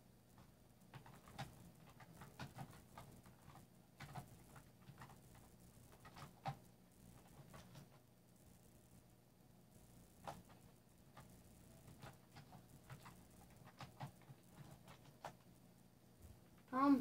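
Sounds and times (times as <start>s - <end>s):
fingers tapping touchscreen keyboard: 0.4s - 8.0s, 10.2s - 15.5s.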